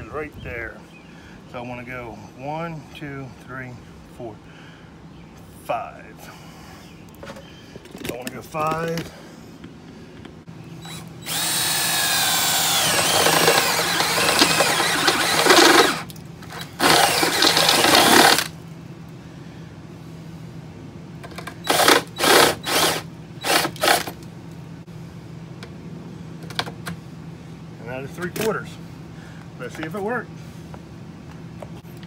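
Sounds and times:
cordless drill whining: 10.8s - 18.5s, 21.6s - 24.1s.

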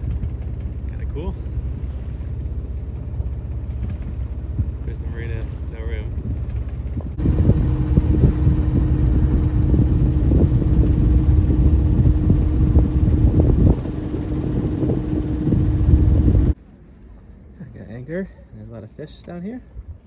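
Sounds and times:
wind buffeting the microphone: 0.0s - 16.6s
boat engine hum: 0.0s - 20.0s.

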